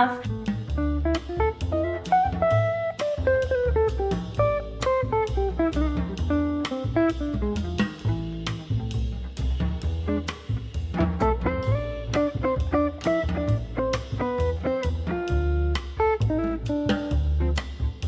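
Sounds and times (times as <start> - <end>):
upbeat background music: 0.0 - 8.8.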